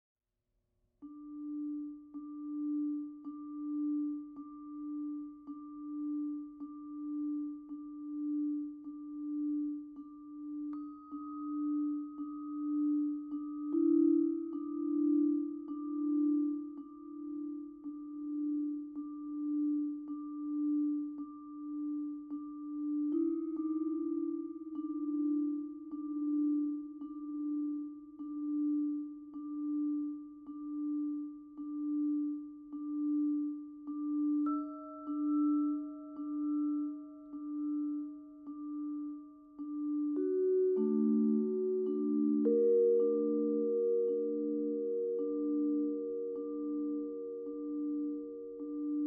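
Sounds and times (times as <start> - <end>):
vibraphone notes ringing: 39.6 - 49.0.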